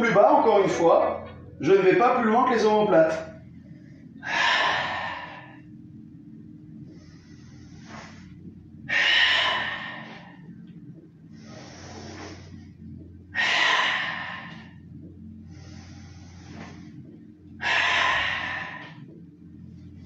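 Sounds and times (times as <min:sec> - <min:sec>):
man breathing hard: 0:03.6 - 0:05.8, 0:06.8 - 0:20.0.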